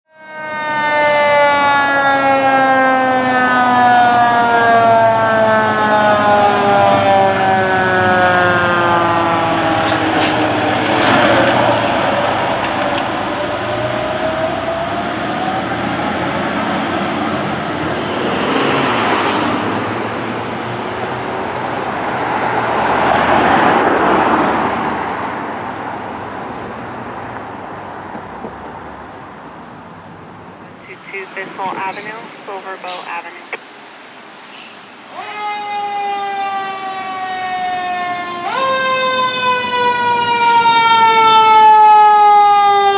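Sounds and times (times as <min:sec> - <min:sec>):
fire engine siren: 0:00.1 - 0:25.2, 0:35.0 - 0:42.9
truck engine and road noise: 0:00.1 - 0:42.9.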